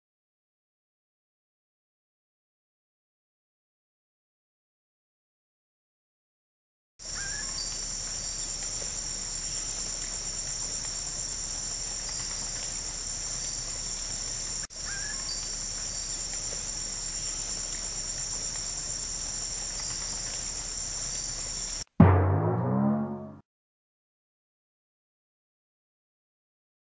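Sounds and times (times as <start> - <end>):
insects chirring: 7.0 - 21.9.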